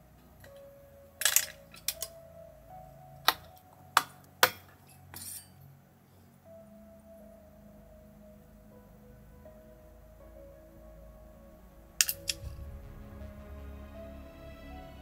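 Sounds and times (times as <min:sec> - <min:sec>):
soft background music: 0:00.0 - 0:15.0
metallic clicks of small tools: 0:12.0 - 0:12.5.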